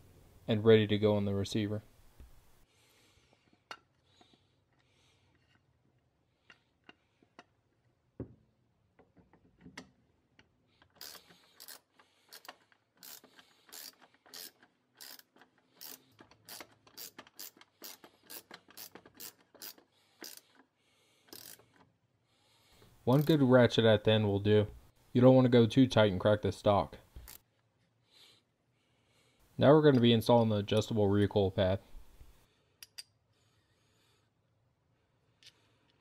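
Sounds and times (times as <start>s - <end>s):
socket ratchet clicking: 10.8s - 20.6s, 21.3s - 21.8s.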